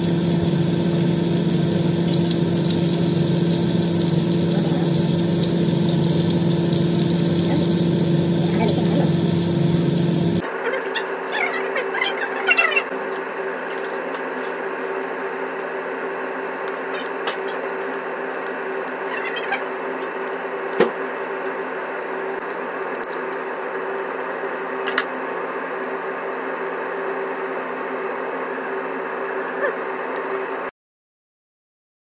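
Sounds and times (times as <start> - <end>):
steady electrical hum: 0.0 - 10.4.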